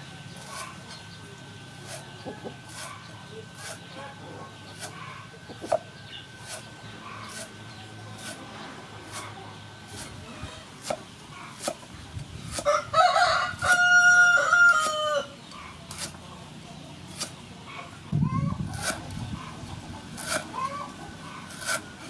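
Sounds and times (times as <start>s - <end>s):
cleaver chopping on wooden block: 11.6s - 11.8s
rooster crowing: 12.6s - 15.4s.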